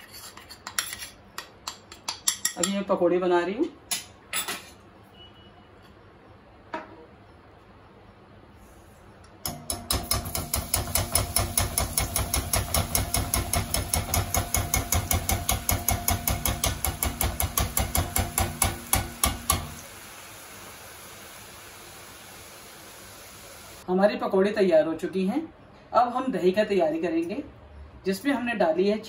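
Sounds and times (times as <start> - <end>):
metal spoon tapping on pan: 1.4 - 2.8, 9.4 - 19.8
oil sizzling: 10.1 - 23.8.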